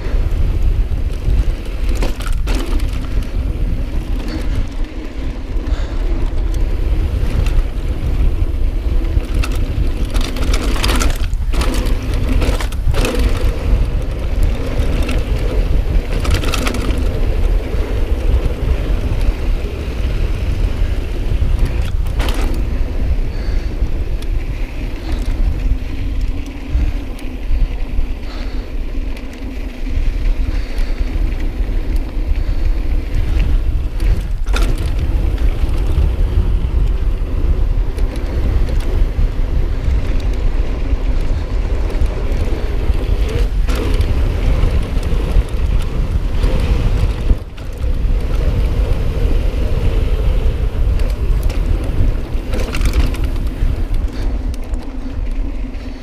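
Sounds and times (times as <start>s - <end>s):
bike rattling over dirt: 0.0s - 56.0s
wind buffeting microphone: 0.0s - 56.0s.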